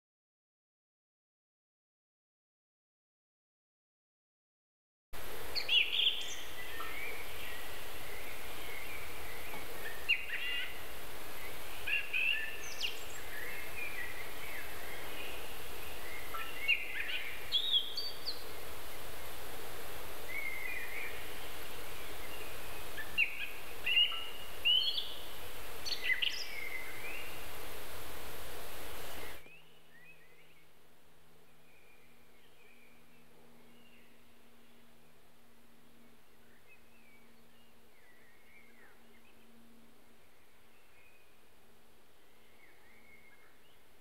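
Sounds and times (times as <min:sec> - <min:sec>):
outdoor background hiss: 0:05.2 - 0:44.0
songbirds chirping and whistling: 0:05.5 - 0:19.4, 0:20.2 - 0:27.7, 0:29.0 - 0:30.7, 0:42.2 - 0:43.9.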